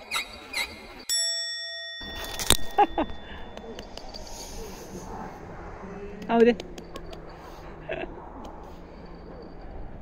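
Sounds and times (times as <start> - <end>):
bell-like chime: 1.1 - 4.8.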